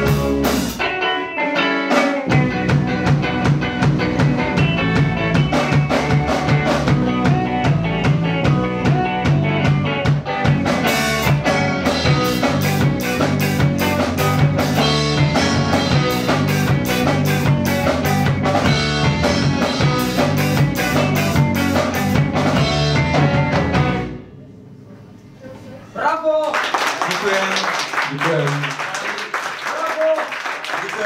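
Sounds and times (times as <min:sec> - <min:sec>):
drum kit with cymbals: 0:00.0 - 0:24.2
electric guitars: 0:00.0 - 0:24.3
bass guitar: 0:00.0 - 0:25.1.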